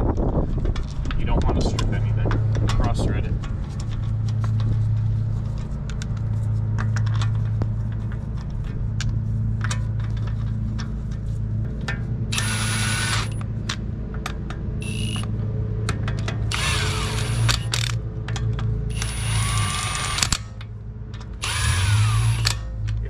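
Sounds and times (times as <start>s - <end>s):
steady low hum: 0.0s - 23.0s
bolts and socket clicking and rattling: 11.9s - 23.0s.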